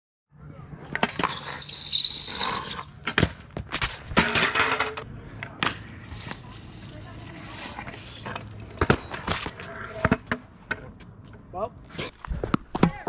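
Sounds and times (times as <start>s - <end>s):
scooter wheels squealing on concrete: 0.9s - 3.3s, 5.7s - 10.2s.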